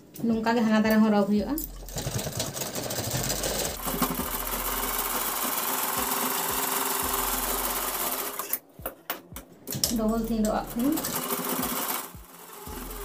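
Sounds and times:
sewing machine stitching: 1.8 - 8.6, 9.8 - 13.0.

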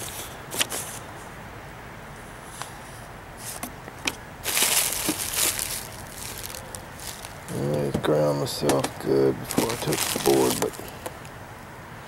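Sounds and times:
bubble wrap crinkling: 4.4 - 7.6, 9.4 - 11.3.

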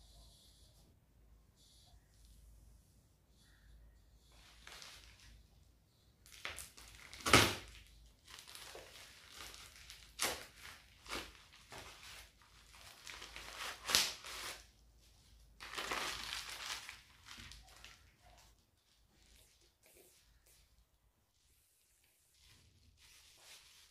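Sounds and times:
plastic mailer tearing: 6.3 - 14.7.

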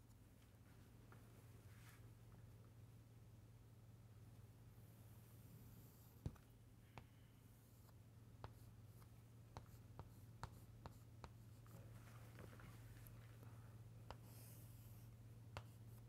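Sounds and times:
chalk scratching on chalkboard: 7.5 - 11.9, 14.1 - 16.0
chalk tapping on chalkboard: 8.4 - 11.6, 14.1 - 14.5, 15.6 - 16.0.

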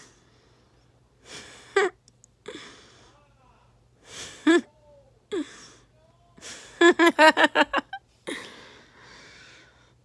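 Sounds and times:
person laughing: 4.4 - 4.7, 6.4 - 8.5.

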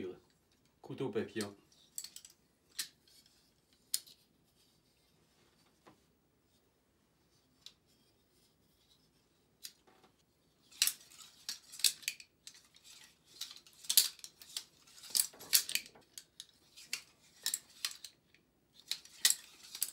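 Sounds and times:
butterfly knife handles clicking: 10.7 - 19.9.

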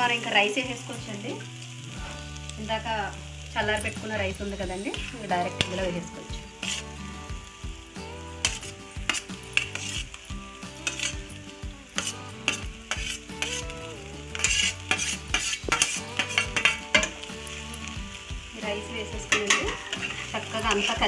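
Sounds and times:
low sizzle: 0.0 - 21.0
metal spoon scraping bowl: 6.6 - 6.9, 8.4 - 10.1, 10.8 - 11.2, 14.4 - 17.1.

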